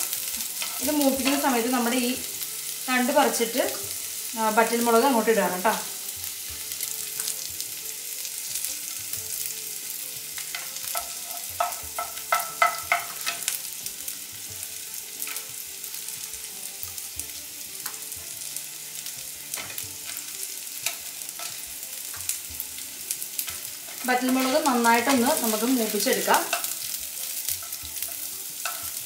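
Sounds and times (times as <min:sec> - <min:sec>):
vegetables sizzling in hot oil: 0:00.0 - 0:29.0
spoon clicking against pan: 0:10.5 - 0:13.6, 0:26.5 - 0:26.8, 0:27.6 - 0:29.0.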